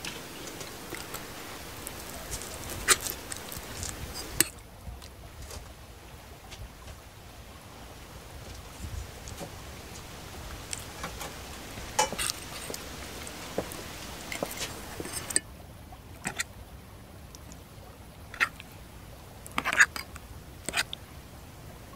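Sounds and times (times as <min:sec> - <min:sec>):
wet sauce sounds: 0:00.0 - 0:05.2, 0:08.5 - 0:15.4, 0:16.2 - 0:16.5, 0:18.2 - 0:18.8, 0:19.4 - 0:21.0
steady background hiss: 0:00.0 - 0:21.9
metal utensils scraping on plate: 0:02.3 - 0:04.5, 0:12.0 - 0:12.8, 0:14.2 - 0:15.4, 0:16.2 - 0:16.4, 0:19.6 - 0:20.1, 0:20.7 - 0:20.9.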